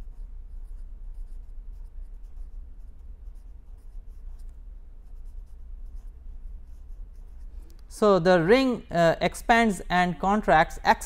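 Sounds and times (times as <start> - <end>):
pen scratching on paper: 0.0 - 7.6
steady low hum: 0.0 - 11.0.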